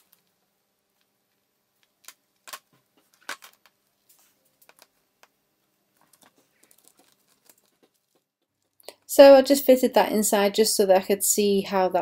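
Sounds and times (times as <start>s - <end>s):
light ticks of resin pieces: 0.0s - 5.4s, 6.0s - 9.0s.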